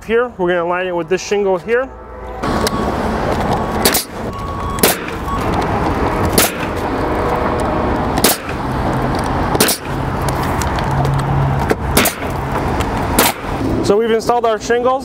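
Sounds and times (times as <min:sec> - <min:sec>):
nail gun firing nails: 0:03.8 - 0:04.2, 0:04.8 - 0:05.2, 0:06.3 - 0:06.8, 0:08.2 - 0:08.6, 0:09.6 - 0:10.0, 0:11.9 - 0:12.4, 0:13.2 - 0:13.6.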